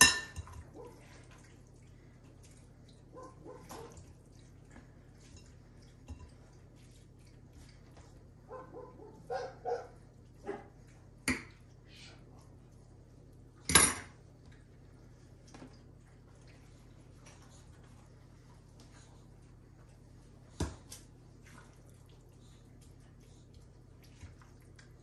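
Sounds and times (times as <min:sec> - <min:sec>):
dishes and utensils knocking: 0:00.0 - 0:00.6
dishes clattering: 0:00.0 - 0:00.7, 0:13.6 - 0:14.2.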